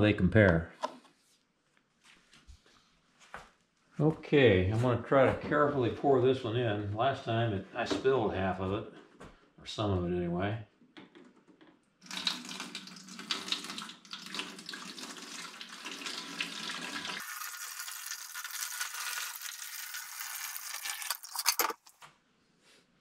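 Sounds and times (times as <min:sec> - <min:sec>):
water pouring into plastic bucket: 0:12.0 - 0:21.9.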